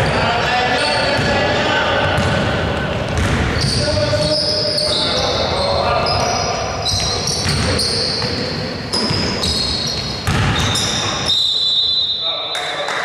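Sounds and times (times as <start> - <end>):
echoing hall background noise: 0.0 - 13.0
sneakers squeaking on court: 2.1 - 12.2
basketball bouncing on hardwood: 2.2 - 3.8, 10.2 - 10.7.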